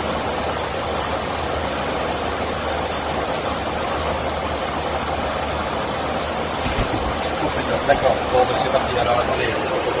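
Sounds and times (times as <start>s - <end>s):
airliner cabin noise: 5.2s - 10.0s.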